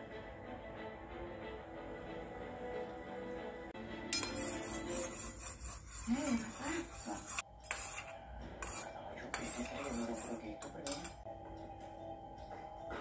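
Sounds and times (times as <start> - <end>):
background music: 0.0 - 13.0
metal spoon stirring in metal bowl: 4.1 - 11.2.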